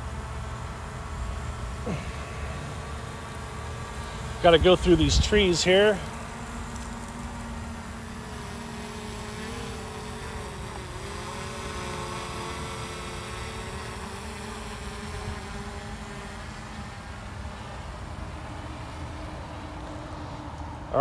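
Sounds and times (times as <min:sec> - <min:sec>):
drone propellers whining: 0:00.0 - 0:20.4
wind rumbling on microphone: 0:04.4 - 0:05.7.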